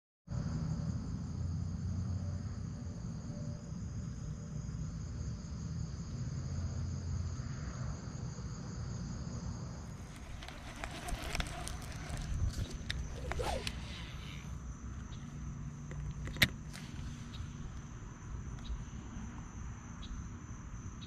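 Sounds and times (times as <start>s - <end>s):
insects trilling: 0.3s - 21.0s.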